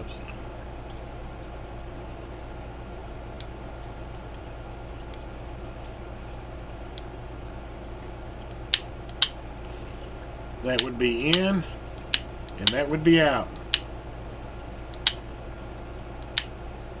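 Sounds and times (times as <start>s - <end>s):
steady low hum: 0.0s - 17.0s
relay clicks: 10.6s - 12.9s.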